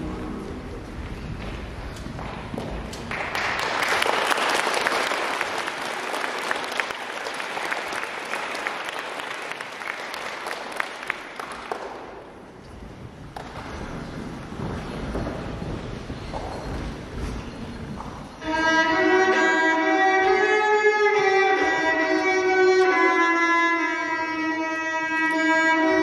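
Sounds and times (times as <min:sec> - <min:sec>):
audience clapping: 0:02.2 - 0:13.8.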